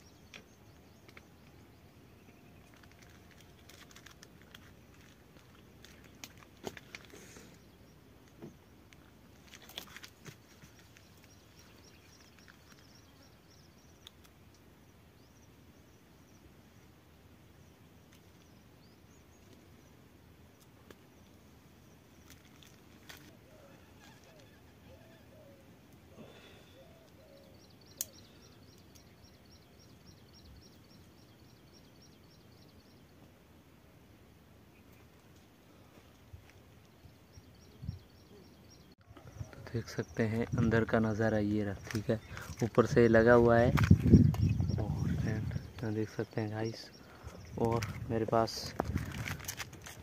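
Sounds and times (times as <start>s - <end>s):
bird chirping rapidly: 41.0s - 47.7s.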